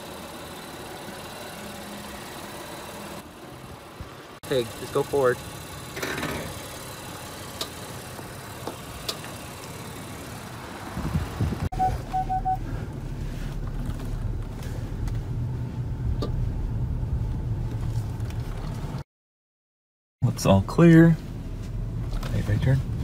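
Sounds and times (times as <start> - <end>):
car cabin rumble: 10.8 - 19.0
electronic chime beeps: 11.8 - 12.6.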